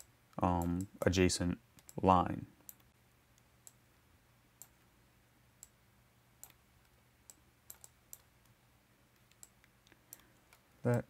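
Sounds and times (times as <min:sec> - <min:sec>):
faint low hum: 0:00.0 - 0:11.0
faint computer mouse clicks: 0:06.4 - 0:08.6, 0:09.2 - 0:11.0.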